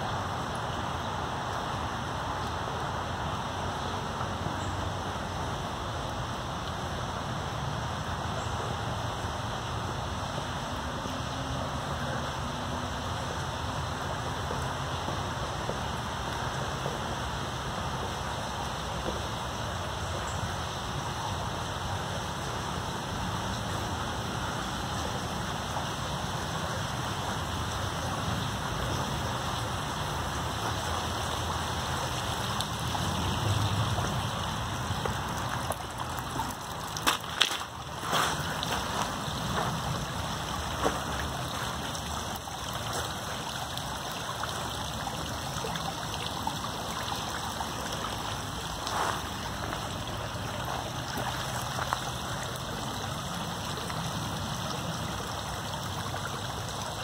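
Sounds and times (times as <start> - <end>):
flowing water: 0.0 - 57.0.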